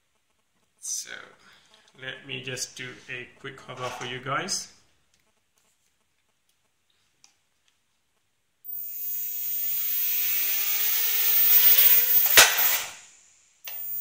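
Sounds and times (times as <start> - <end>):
quadcopter motors whirring: 8.7 - 14.0.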